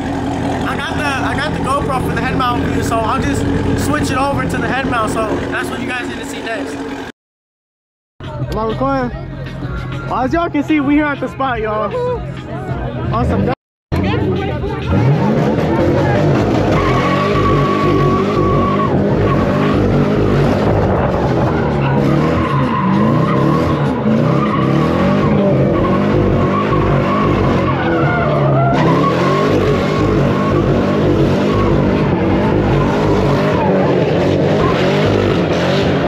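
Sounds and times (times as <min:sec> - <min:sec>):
car engine revving high: 0:00.0 - 0:07.1, 0:13.2 - 0:36.0
tyres screeching: 0:14.9 - 0:20.7, 0:21.3 - 0:35.8.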